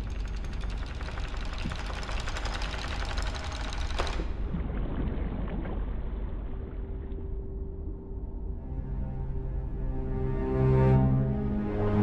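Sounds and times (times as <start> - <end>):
rapid underwater crackling clicks: 0.0 - 4.5
low underwater rumble: 4.4 - 10.4.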